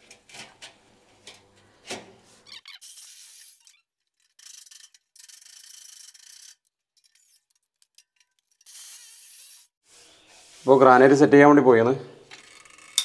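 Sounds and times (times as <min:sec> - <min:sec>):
metal rasping and scraping: 0:03.5 - 0:10.6.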